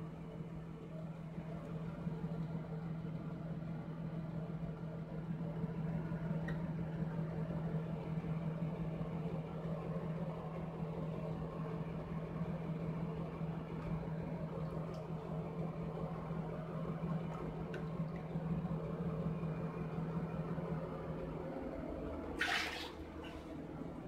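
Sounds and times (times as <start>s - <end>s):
steady low hum: 0.0s - 24.0s
tap water running into sink: 22.4s - 23.2s.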